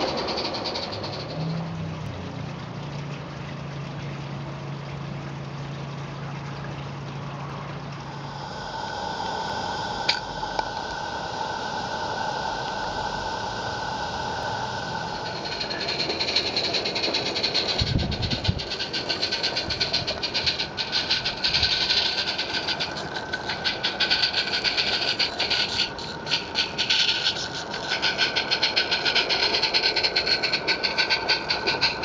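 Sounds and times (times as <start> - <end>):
model steam locomotive chuffing: 0.0 - 1.9, 8.1 - 32.0
wheels clicking on track: 0.0 - 2.1, 10.0 - 32.0.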